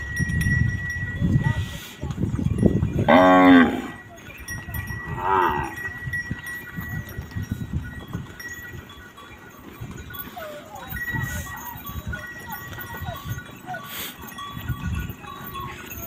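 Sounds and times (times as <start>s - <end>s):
hooves shuffling on dirt: 0.0s - 16.0s
cattle mooing: 3.1s - 4.0s, 5.1s - 5.8s.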